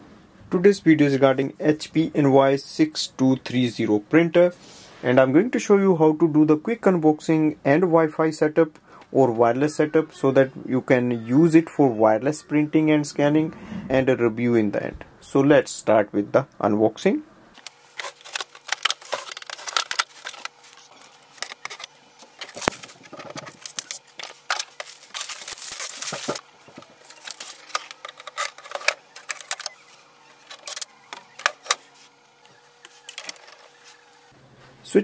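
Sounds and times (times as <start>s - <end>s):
plastic wrap crinkling: 17.6s - 32.0s.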